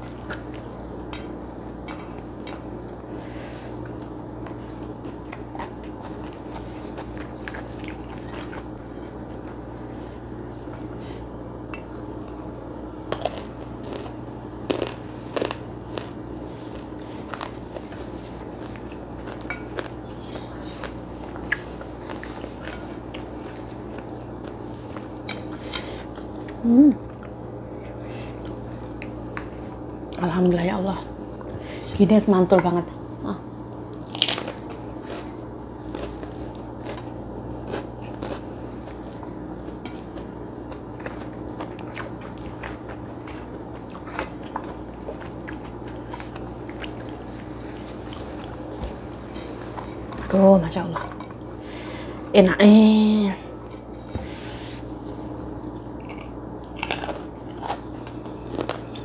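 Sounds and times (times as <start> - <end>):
chewing and crunching food: 0.0 - 32.8, 33.8 - 52.5, 53.4 - 59.0
low hum: 0.0 - 59.0
person humming mm: 26.6 - 27.0.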